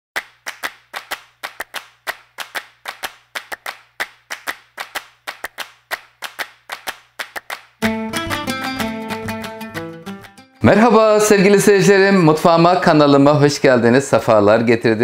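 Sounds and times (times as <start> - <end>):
rhythmic hand clapping: 0.2 - 10.5.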